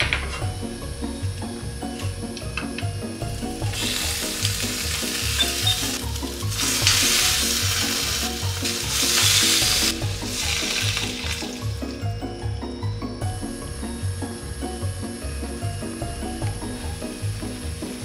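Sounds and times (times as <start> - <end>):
meat sizzling in frying pan: 3.6 - 12.0.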